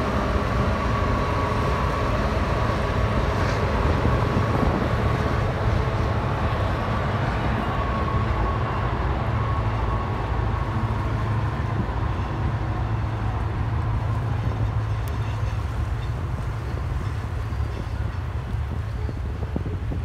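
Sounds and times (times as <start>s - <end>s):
freight train rumbling past: 0.0s - 20.0s.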